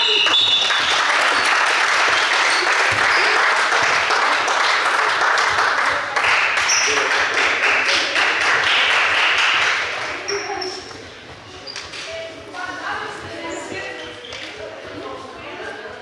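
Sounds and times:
applause: 0:00.0 - 0:10.1.

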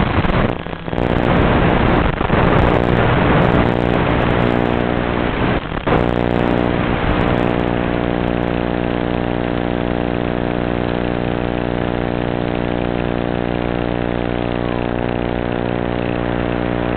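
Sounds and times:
harsh steady buzz: 0:00.0 - 0:16.9.

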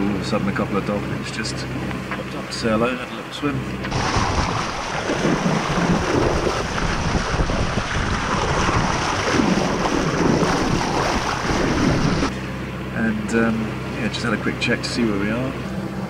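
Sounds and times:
sea rushing along hull: 0:00.0 - 0:16.0
wind buffeting microphone: 0:03.8 - 0:12.3.

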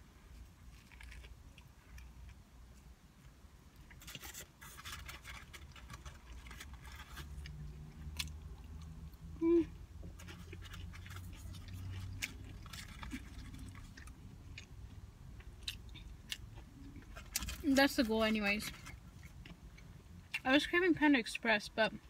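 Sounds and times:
small crunches and clicks: 0:00.3 - 0:08.9
chewing and mouth sounds: 0:10.1 - 0:17.6.

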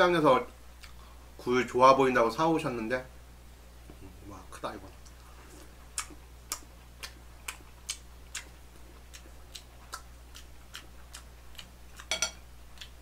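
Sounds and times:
close chewing with mouth clicks: 0:05.0 - 0:13.0
dishware clinking: 0:12.1 - 0:12.4.

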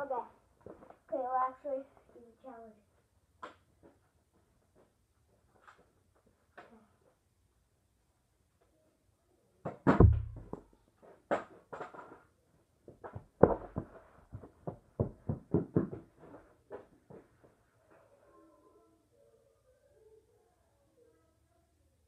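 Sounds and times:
heavy thump on carpeted floor: 0:09.9 - 0:10.6
child running footsteps: 0:12.9 - 0:17.6.

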